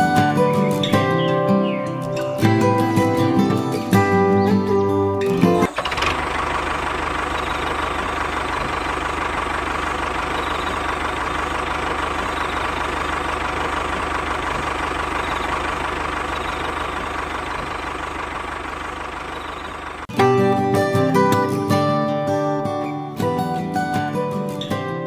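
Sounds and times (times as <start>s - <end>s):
model tractor motor buzzing: 5.2s - 20.1s.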